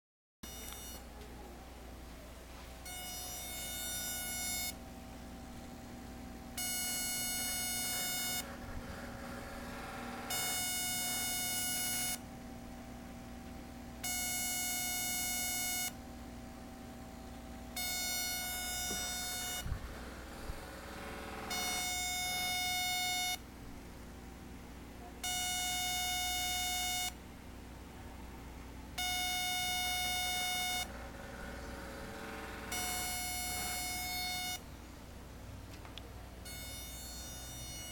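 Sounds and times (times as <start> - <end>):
steady low hum: 0.4 - 37.9
buzzy electronic tone: 2.8 - 4.8, 5.5 - 12.2, 17.2 - 23.4, 29.0 - 34.6, 36.4 - 37.9.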